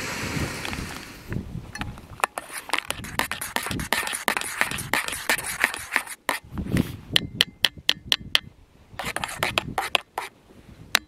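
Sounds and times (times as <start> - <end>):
crinkly rustling and scraping: 2.2 - 6.2.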